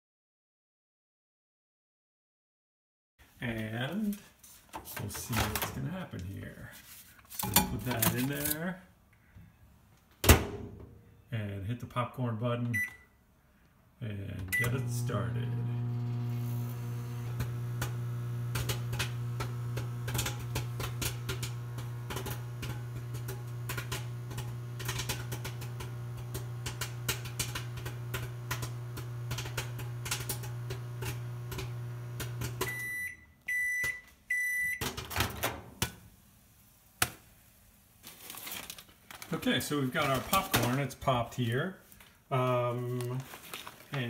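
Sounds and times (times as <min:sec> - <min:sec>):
microwave beeps: 0:12.7 - 0:13.2, 0:14.5 - 0:19.9, 0:32.2 - 0:34.8
microwave oven humming: 0:14.4 - 0:33.2
popcorn popping: 0:14.6 - 0:32.8.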